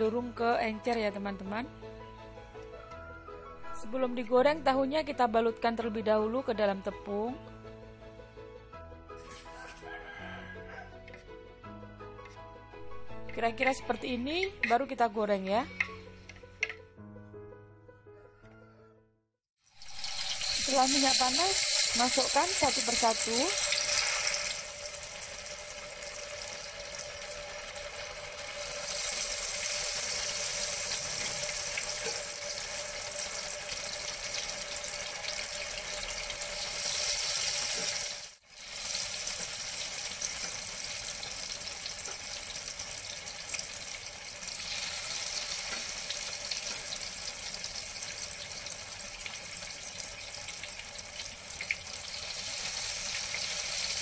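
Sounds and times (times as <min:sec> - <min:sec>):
tofu deep-frying in hot oil: 0:19.6 - 0:54.0.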